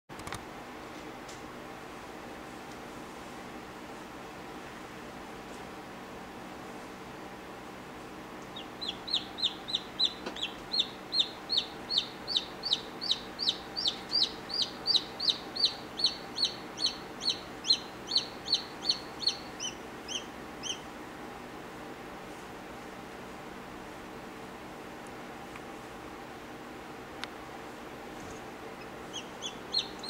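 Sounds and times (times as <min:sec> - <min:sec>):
chick peeping: 0:08.4 - 0:20.9, 0:28.8 - 0:30.0.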